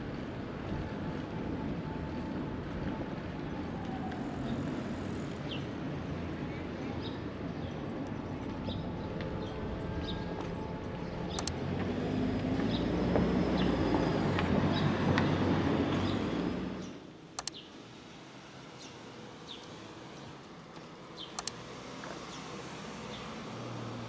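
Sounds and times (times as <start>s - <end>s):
bicycle riding rumble: 0.0s - 6.4s
sharp double clicks: 11.3s - 11.6s, 17.4s - 17.6s, 21.4s - 21.6s.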